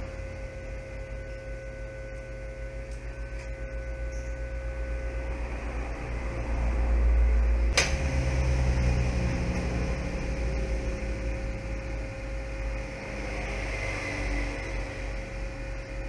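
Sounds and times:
hot-air gun hum and whine: 0.0 - 16.0
sharp click: 7.7 - 8.0.

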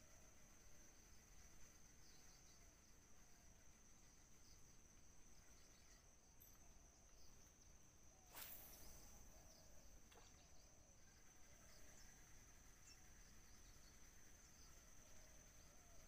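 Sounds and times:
high-pitched insect drone: 0.0 - 16.0
fishing rod cast swish: 8.2 - 9.4.

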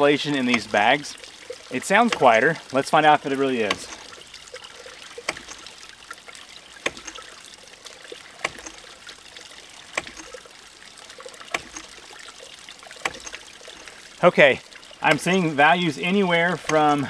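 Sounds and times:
trickling creek water: 0.0 - 17.0
pump valve clicking shut: 0.3 - 0.9, 1.7 - 2.5, 3.3 - 5.7, 6.8 - 7.4, 8.1 - 9.0, 9.8 - 10.5, 11.2 - 12.0, 12.9 - 13.9, 16.5 - 17.0.

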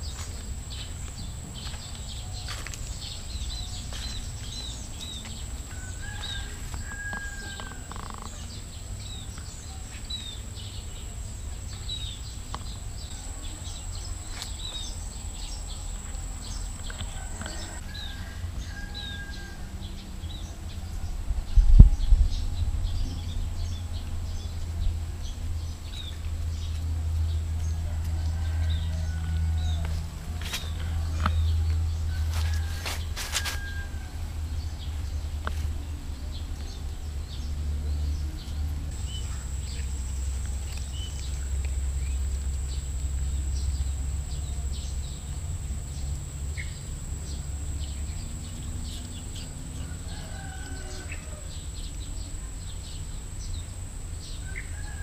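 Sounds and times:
high-pitched whine: 38.8 - 55.0.

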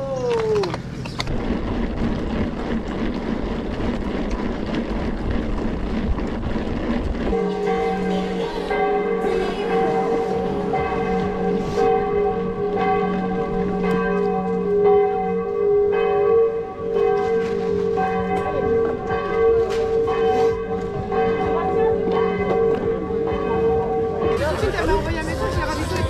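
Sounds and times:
bells ringing: 7.3 - 26.0.

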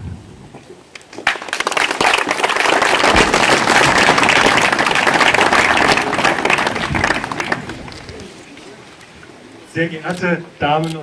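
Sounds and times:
audience applauding: 1.1 - 8.3.

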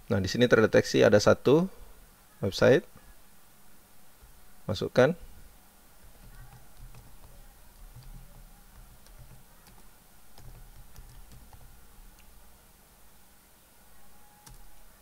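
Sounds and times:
computer keyboard typing: 6.0 - 12.4, 14.4 - 14.8.

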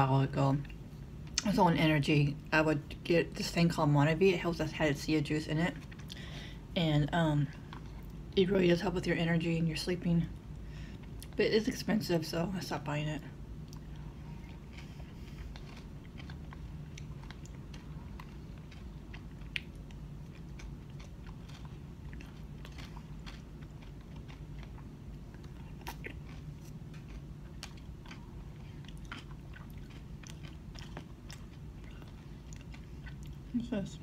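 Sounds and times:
low hum: 0.0 - 34.0
chewing and mouth sounds: 5.5 - 6.3, 7.1 - 9.5, 13.6 - 33.7.

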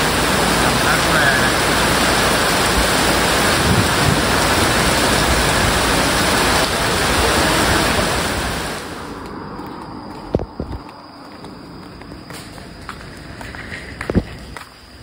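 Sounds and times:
running water rushing: 0.0 - 9.4.

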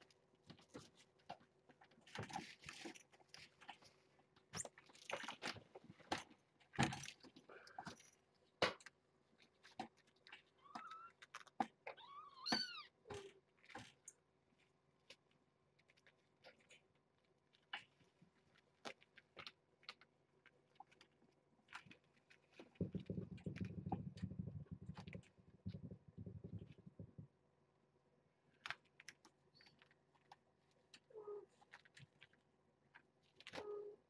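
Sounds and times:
kitten meowing: 11.9 - 13.0
low rough rumble: 22.8 - 27.4.

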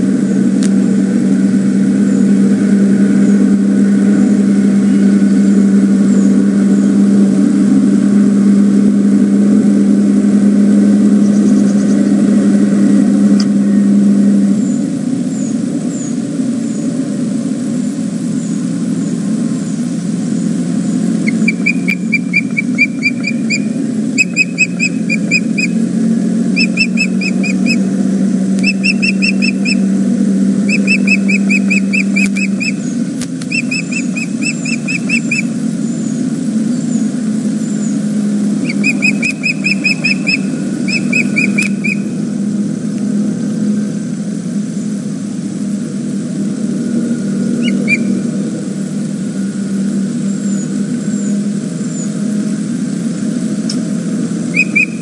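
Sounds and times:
steady low hum: 0.0 - 55.0
osprey whistled chirps: 11.1 - 12.4, 17.7 - 30.0, 30.6 - 42.2, 47.0 - 48.4, 49.9 - 52.3, 54.4 - 55.0.

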